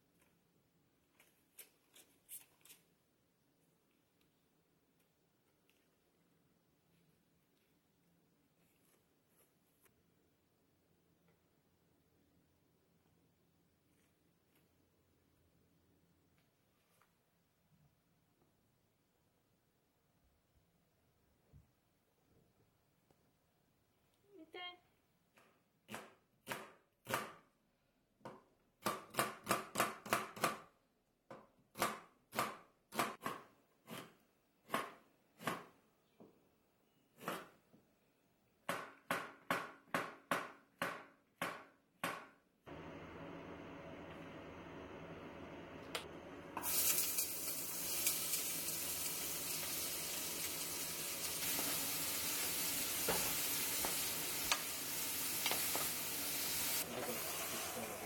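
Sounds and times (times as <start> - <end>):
knife slicing onion on cutting board: 31.7 - 35.8, 37.2 - 37.6
vegetables sizzling in oil: 46.6 - 58.0
wooden spatula knocking: 53.0 - 54.6.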